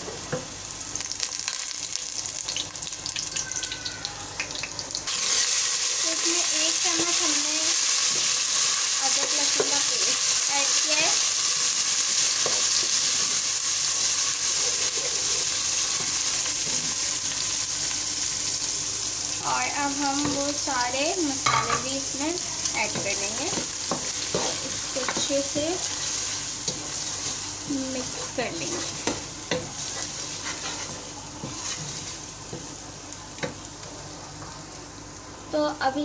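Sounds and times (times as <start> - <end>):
onions sizzling in hot oil: 0.0 - 36.0
wooden spoon stirring: 22.9 - 32.7.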